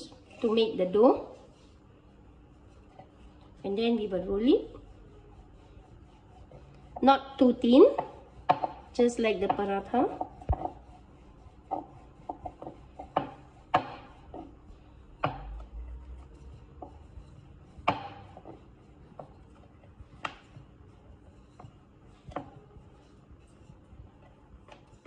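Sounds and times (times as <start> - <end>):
faint rubbing of dough: 0.0 - 25.0
rolling pin knocking on board: 7.9 - 10.8, 11.7 - 14.5, 15.2 - 15.7, 17.8 - 18.6.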